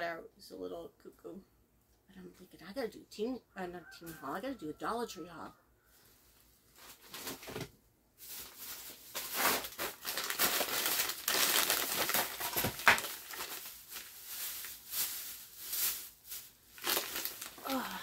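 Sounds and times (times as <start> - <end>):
plastic bags crinkling: 6.7 - 18.0.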